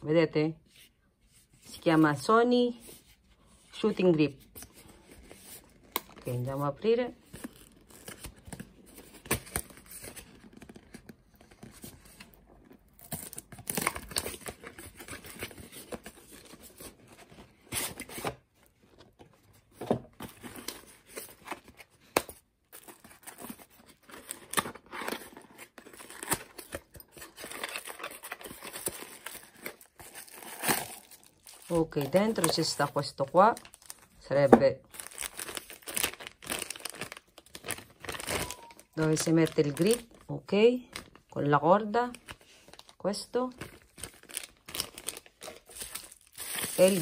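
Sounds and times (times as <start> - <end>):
packaging rustling and tearing: 7.2 - 19.1, 20.2 - 34.2, 34.9 - 40.3, 42.1 - 47.0.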